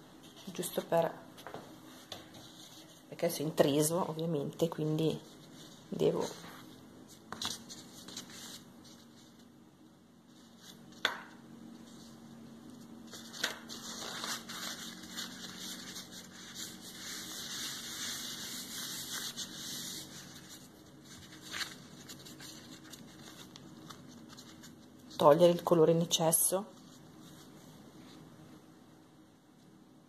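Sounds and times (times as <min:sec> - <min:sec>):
paper towel rustling: 0:11.6 - 0:25.6, 0:26.7 - 0:28.4.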